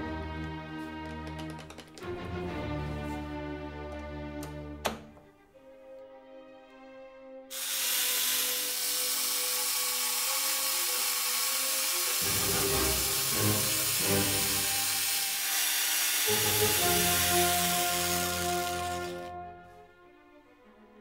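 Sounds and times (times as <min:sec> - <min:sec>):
jigsaw blade cutting acrylic: 0:07.5 - 0:19.3
jigsaw running: 0:07.5 - 0:19.4.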